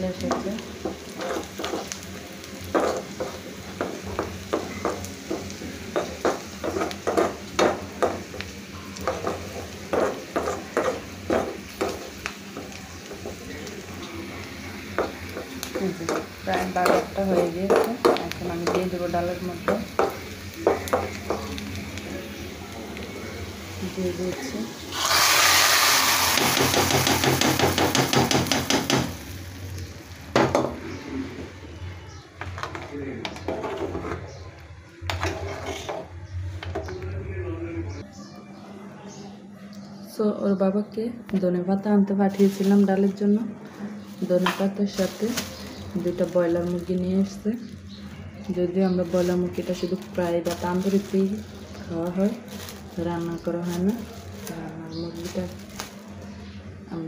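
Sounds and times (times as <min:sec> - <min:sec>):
garlic sizzling in hot oil: 0:00.0 - 0:31.0
spatula scraping a pan: 0:01.0 - 0:02.0, 0:35.1 - 0:36.2.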